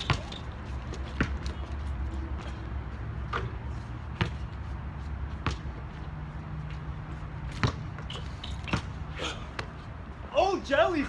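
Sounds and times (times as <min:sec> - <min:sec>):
basketball bouncing: 0:00.0 - 0:01.7, 0:03.2 - 0:04.6, 0:05.4 - 0:05.8, 0:06.7 - 0:09.8.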